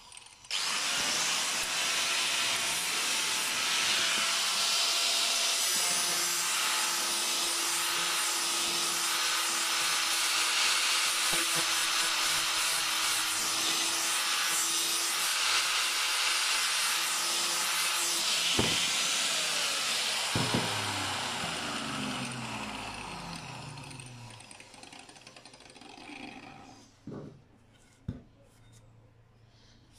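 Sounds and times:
grinder motor winding down: 0.2 - 4.7, 16.5 - 26.8
angle grinder sanding wood: 0.5 - 25.1.

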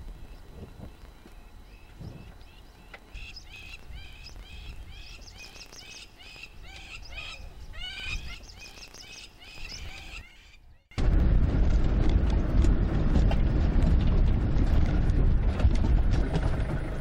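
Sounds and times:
bird chirping: 0.2 - 11.0
low background rumble: 11.0 - 17.0.

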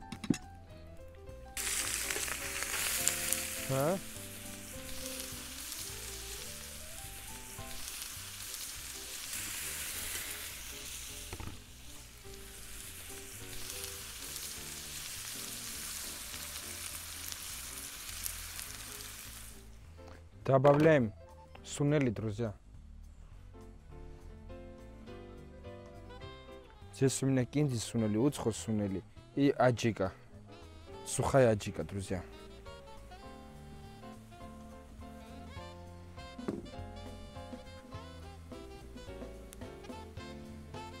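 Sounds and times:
soft background music: 0.0 - 41.0
onions sizzling in a wok: 1.6 - 19.7, 32.0 - 41.0.

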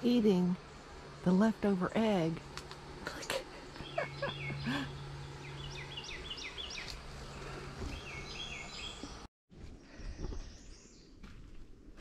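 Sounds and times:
low steady hum: 0.0 - 12.0
small bird chirping: 3.2 - 9.3.

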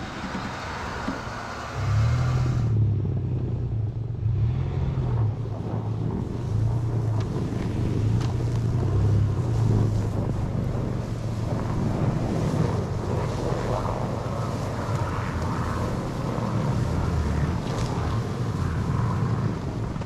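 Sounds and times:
hiss: 0.0 - 2.7
pickup truck engine rumbling: 0.0 - 20.0
carcass dragging across snow: 6.7 - 19.8.

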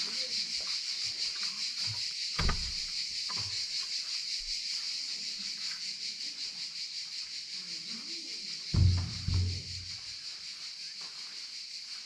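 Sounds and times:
dull knocks: 2.4 - 2.9, 8.8 - 10.0
wooden door opening: 2.4 - 2.9, 8.8 - 9.8.

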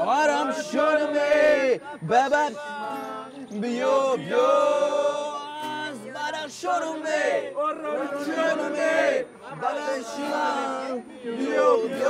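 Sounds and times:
man singing: 0.0 - 8.1
acoustic guitar: 0.0 - 12.0
men singing along: 0.0 - 12.0.

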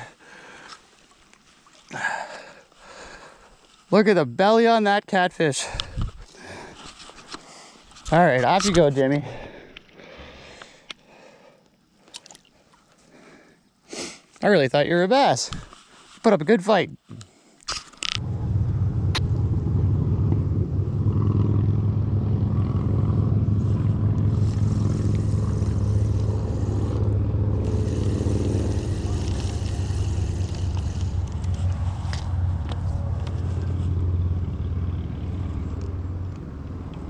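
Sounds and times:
engine rumbling: 18.0 - 37.0.

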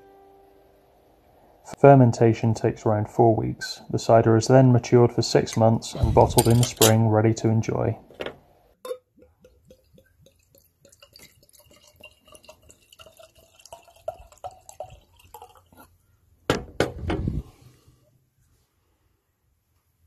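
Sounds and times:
cider glugging into a glass: 8.9 - 16.0.

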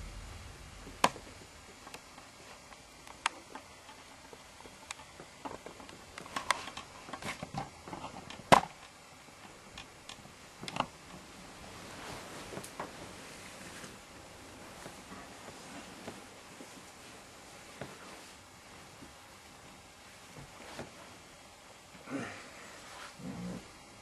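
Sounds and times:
sharp clicks and light knocks: 1.0 - 11.2.

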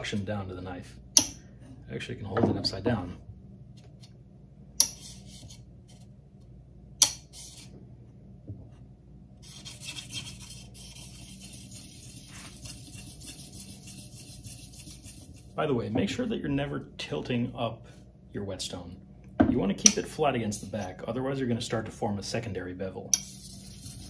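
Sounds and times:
whetstone scraping steel blade: 4.8 - 5.3, 23.1 - 24.0.

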